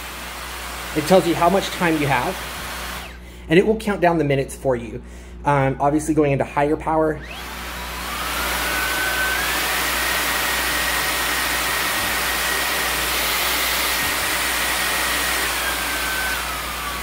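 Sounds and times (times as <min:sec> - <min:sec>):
vacuum motor whine and air rush: 0:00.0 - 0:03.2, 0:07.2 - 0:17.0.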